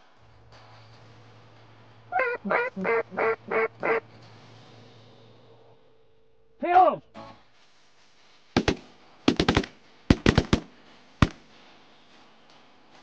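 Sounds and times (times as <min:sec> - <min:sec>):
shotgun shots: 0:08.6 - 0:11.4.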